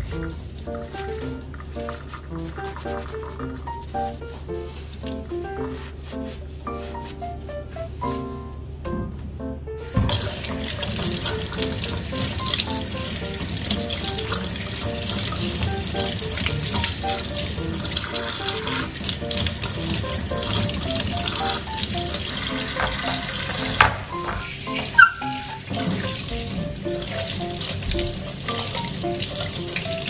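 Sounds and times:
background music: 0:00.0 - 0:30.0
tap water splashing on metal: 0:09.9 - 0:30.0.

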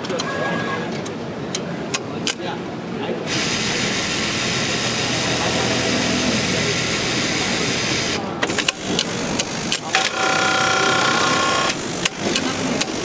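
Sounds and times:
sewing machine whirring: 0:03.3 - 0:13.0
sharp clicks: 0:11.6 - 0:13.0.

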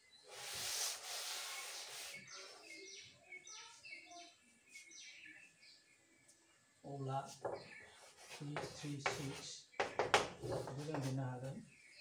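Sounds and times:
bird chirping: 0:00.0 - 0:12.0
duster wiping a blackboard: 0:00.3 - 0:02.6.

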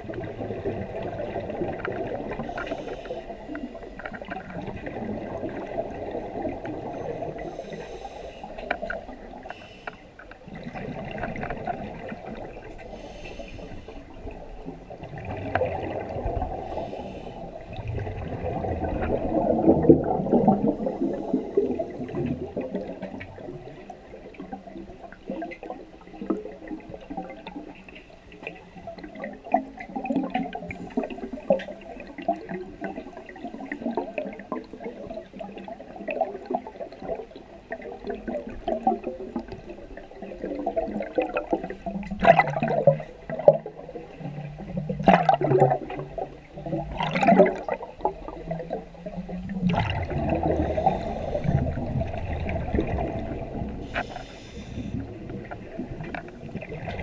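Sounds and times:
hissing regulator inhalations: 0:02.4 - 0:03.7, 0:07.4 - 0:10.1, 0:13.0 - 0:14.0, 0:16.6 - 0:17.5, 0:50.6 - 0:51.8, 0:53.8 - 0:55.1
bubbling exhalations: 0:49.5 - 0:57.0.

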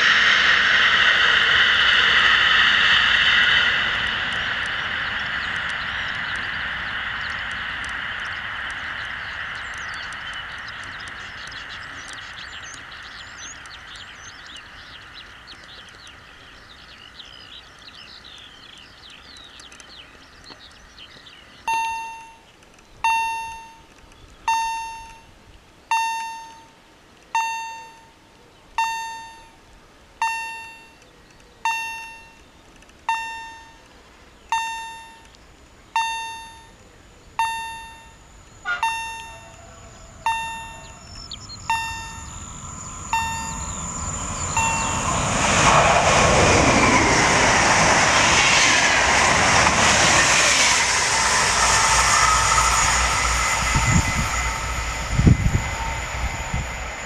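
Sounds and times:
passing train rumble and wheel noise: 0:00.0 - 0:57.0
level crossing warning bell: 0:21.6 - 0:23.9, 0:24.5 - 0:26.8, 0:27.4 - 0:31.0, 0:31.6 - 0:47.2.

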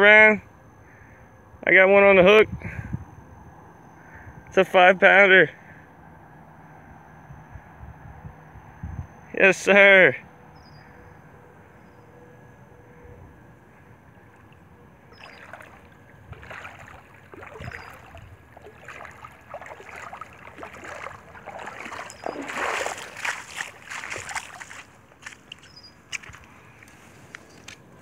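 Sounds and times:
fish thrashing water splashes: 0:14.5 - 0:25.6.

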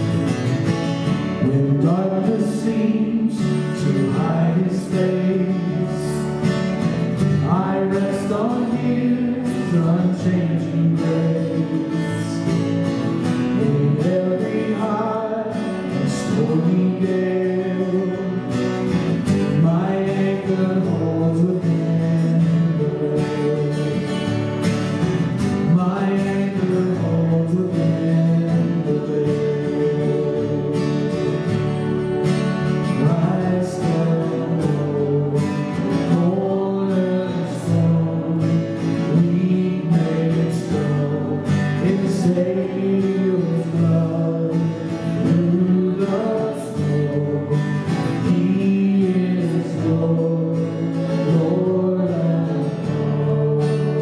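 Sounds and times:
acoustic guitar: 0:00.0 - 0:54.0
bass guitar: 0:00.0 - 0:54.0
keyboard: 0:00.0 - 0:54.0
man and woman singing: 0:07.4 - 0:12.4, 0:13.6 - 0:18.5, 0:19.4 - 0:24.2, 0:25.6 - 0:31.4, 0:32.9 - 0:54.0.

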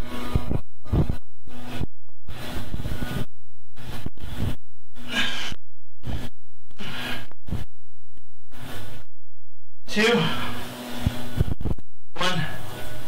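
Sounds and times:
man breathing heavily: 0:04.2 - 0:07.7.

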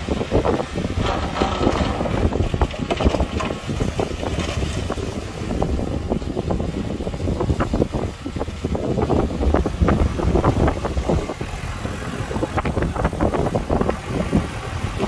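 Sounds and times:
wind buffeting microphone: 0:00.0 - 0:15.0
heavy diesel machinery running: 0:00.3 - 0:07.0
knocks and clanks: 0:00.9 - 0:05.1.

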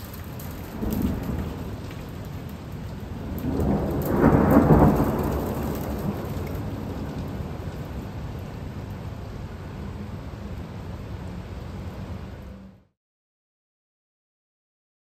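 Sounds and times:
thunder rumbling: 0:00.0 - 0:12.4
steady rain: 0:00.0 - 0:12.9.

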